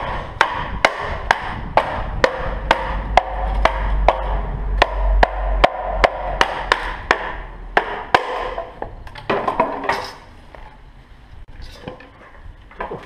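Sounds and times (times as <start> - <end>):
wooden mallet knocking bamboo: 0.4 - 9.8.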